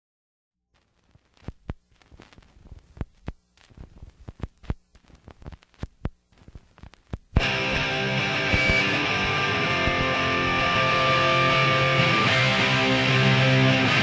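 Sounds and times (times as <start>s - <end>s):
faint low hum: 0.8s - 12.0s
sharp clicks and taps: 1.3s - 11.2s.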